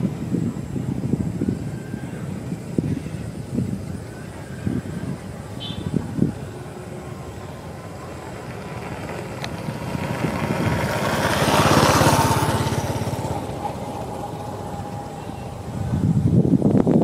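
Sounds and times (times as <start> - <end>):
vehicle engine passing by: 4.5 - 16.7.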